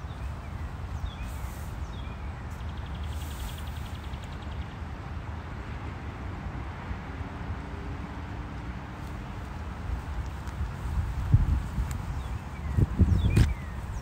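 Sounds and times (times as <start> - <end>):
small birds chirping: 0.0 - 4.9, 9.0 - 14.0
rushing outdoor background noise: 0.0 - 14.0.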